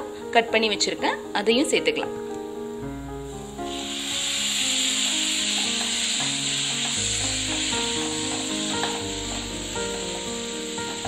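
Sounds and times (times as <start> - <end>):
tomatoes sizzling in hot oil: 3.0 - 11.0.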